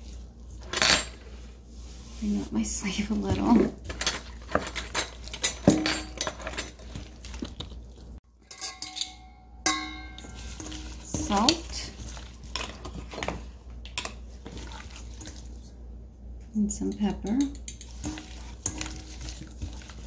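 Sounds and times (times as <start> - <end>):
metal bowl clanking and scraping: 0.5 - 15.7, 16.7 - 20.0
metal bowl ringing: 8.4 - 11.7.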